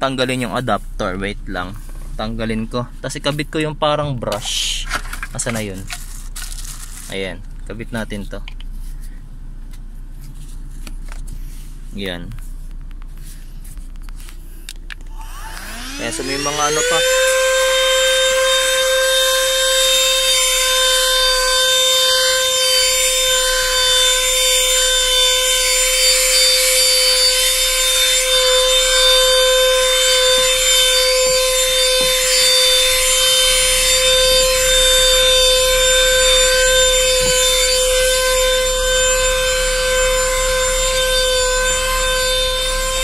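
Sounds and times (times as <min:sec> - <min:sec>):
handheld vacuum cleaner whining: 0:14.7 - 0:43.0.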